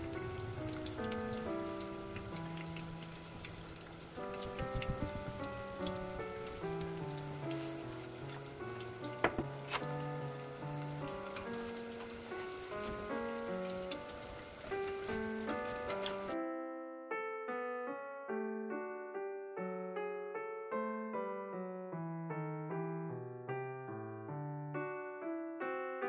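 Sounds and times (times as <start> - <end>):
tofu deep-frying in oil: 0.0 - 16.4
piano-like music: 0.0 - 26.0.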